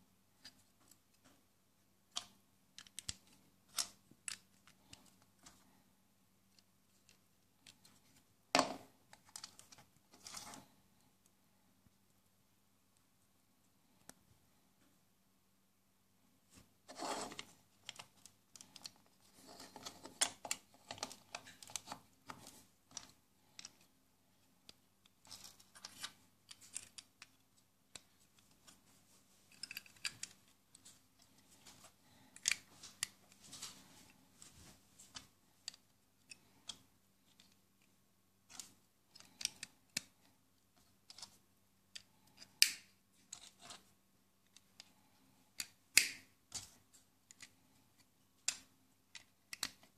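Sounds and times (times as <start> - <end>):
plastic bricks clicking and snapping: 2.1 - 5.2, 45.6 - 46.6, 48.4 - 49.9.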